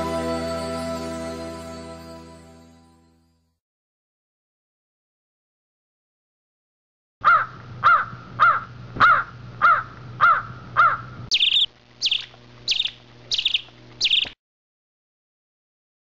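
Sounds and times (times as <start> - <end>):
bird calls rising and falling: 10.8 - 14.4.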